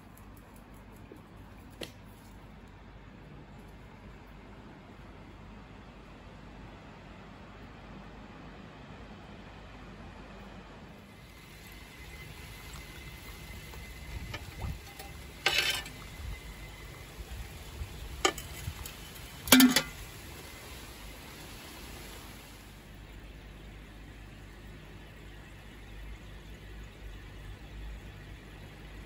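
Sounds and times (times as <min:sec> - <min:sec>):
food sizzling in a frying pan: 0:11.2 - 0:22.9
utensil clattering against pan: 0:14.3 - 0:16.0, 0:18.2 - 0:20.0.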